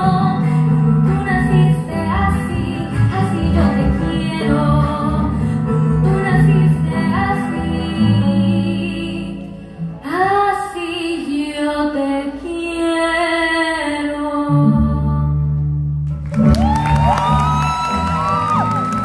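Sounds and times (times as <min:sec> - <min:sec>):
guitars and violin playing: 0:00.0 - 0:09.5
woman singing: 0:00.0 - 0:15.5.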